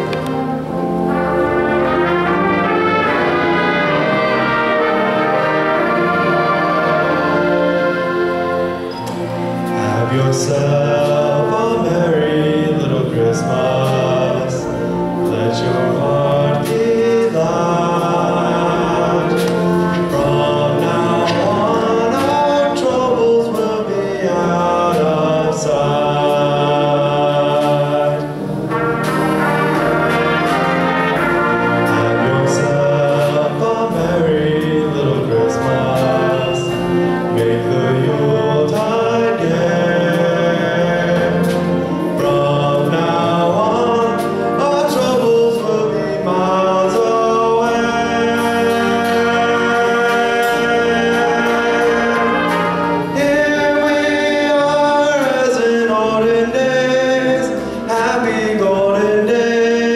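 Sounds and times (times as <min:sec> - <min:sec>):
orchestra with brass playing: 0:00.0 - 0:59.9
group of voices singing: 0:24.2 - 0:28.6, 0:29.9 - 0:59.9.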